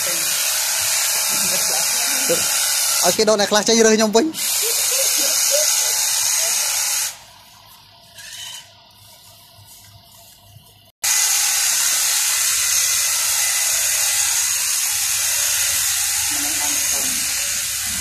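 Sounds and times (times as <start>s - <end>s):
hedge trimmer shearing shrub: 0.0s - 7.2s, 11.0s - 18.0s.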